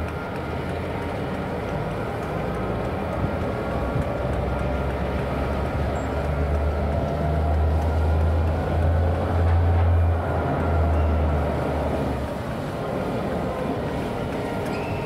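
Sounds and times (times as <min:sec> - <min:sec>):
diesel locomotive engine rumbling: 0:00.0 - 0:15.0.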